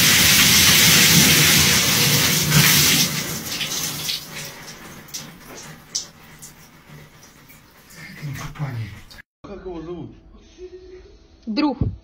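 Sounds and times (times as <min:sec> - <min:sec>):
water dripping: 0:00.0 - 0:09.2
water splashing onto floor: 0:00.0 - 0:09.2.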